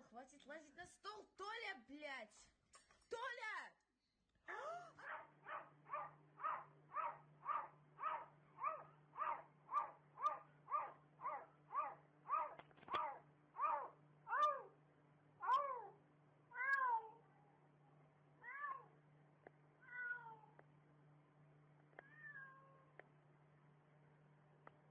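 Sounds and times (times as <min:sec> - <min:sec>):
cat meowing: 0:11.8 - 0:14.7, 0:15.4 - 0:17.2, 0:18.4 - 0:18.9, 0:19.8 - 0:20.6, 0:22.0 - 0:22.9.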